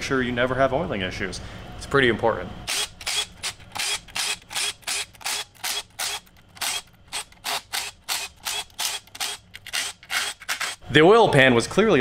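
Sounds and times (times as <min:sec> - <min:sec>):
impact driver bursts: 0:02.7 - 0:10.8.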